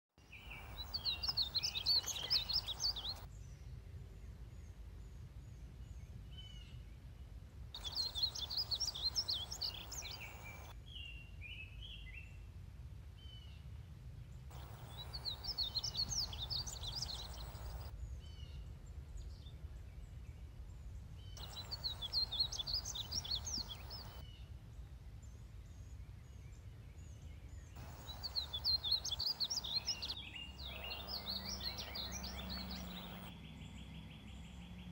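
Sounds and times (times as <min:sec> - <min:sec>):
bird singing warbled phrases: 0:00.2 - 0:03.3, 0:07.8 - 0:12.2, 0:14.5 - 0:18.6, 0:21.2 - 0:24.4, 0:27.5 - 0:34.9.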